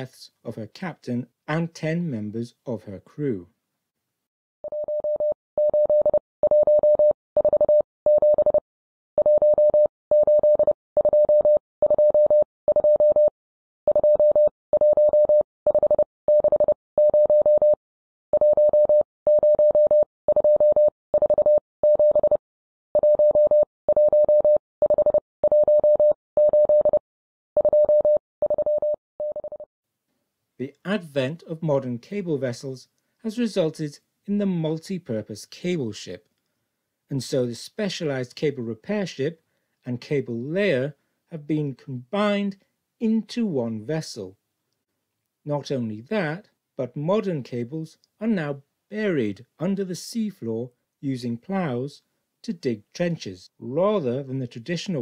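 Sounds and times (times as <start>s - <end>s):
morse code beeping: 4.6s - 8.6s, 9.2s - 13.3s, 13.9s - 17.8s, 18.4s - 22.4s, 23.0s - 27.0s, 27.6s - 29.7s.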